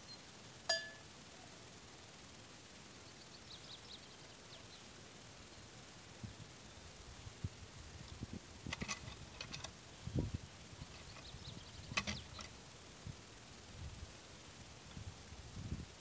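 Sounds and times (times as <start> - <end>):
metal hook clicking on log: 8.7 - 9.7, 11.9 - 12.5.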